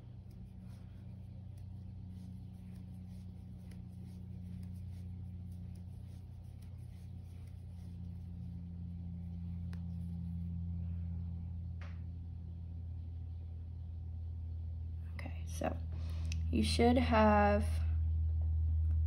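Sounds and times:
crochet hook clicks and yarn rustles: 0:00.0 - 0:10.5
steady low hum: 0:00.0 - 0:19.0.

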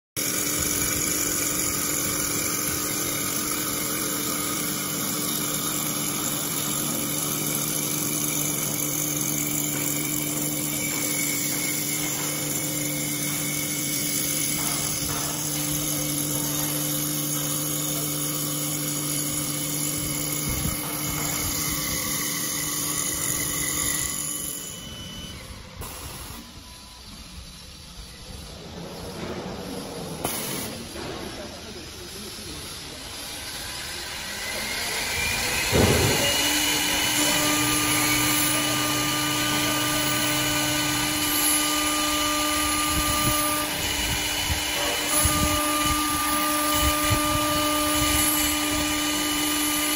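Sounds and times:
wood lathe whine and cutting hiss: 0:00.2 - 0:49.9.

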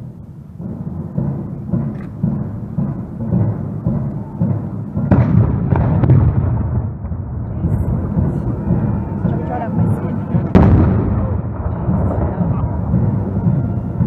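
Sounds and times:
steady low rumble: 0:00.0 - 0:14.0
cannon firing: 0:00.6 - 0:14.0.

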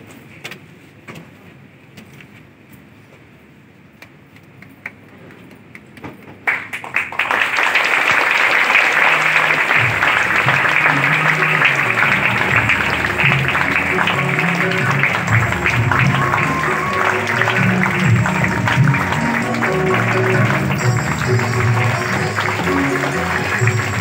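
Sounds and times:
audience applause: 0:04.9 - 0:24.0
music with low bass line: 0:09.8 - 0:24.0.

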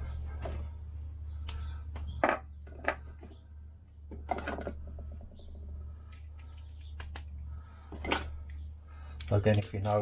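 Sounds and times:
steady low hum: 0:00.0 - 0:09.7
metal tools clinking and scraping: 0:04.1 - 0:05.0, 0:07.9 - 0:08.6.

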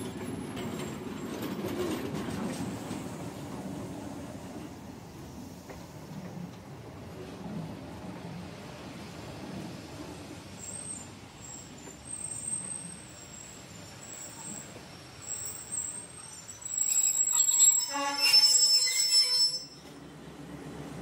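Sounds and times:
train brakes squealing: 0:09.3 - 0:20.2.

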